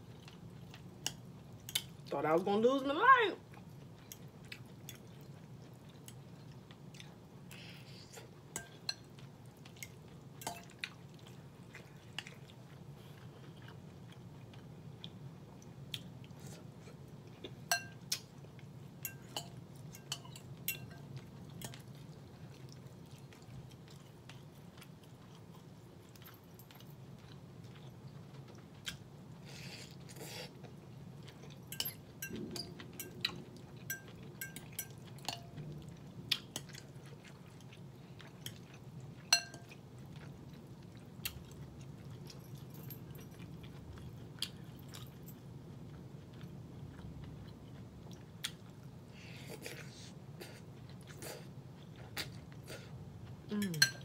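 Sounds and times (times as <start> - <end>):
person chewing food: 0.0 - 2.1, 3.4 - 53.9
low steady hum: 0.0 - 54.0
fork clinking on glass bowl: 17.7 - 18.0, 19.0 - 21.8, 31.7 - 35.5, 39.3 - 39.8, 53.6 - 54.0.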